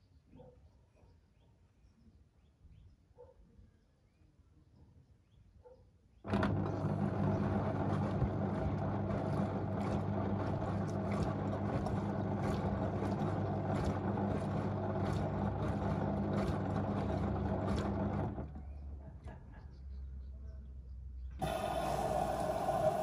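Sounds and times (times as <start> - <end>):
washing machine motor hum: 6.3 - 19.0, 21.4 - 23.0.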